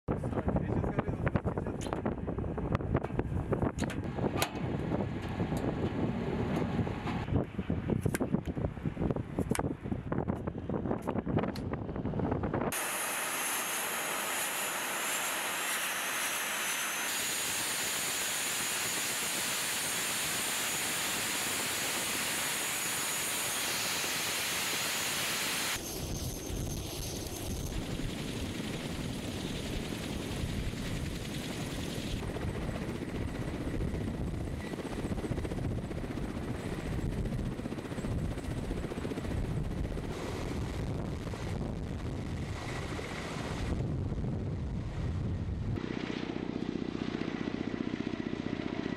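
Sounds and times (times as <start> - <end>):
helicopter rotors rushing: 0.1 - 9.2, 9.8 - 48.9
helicopter turbine whine: 0.2 - 7.9, 8.6 - 48.9.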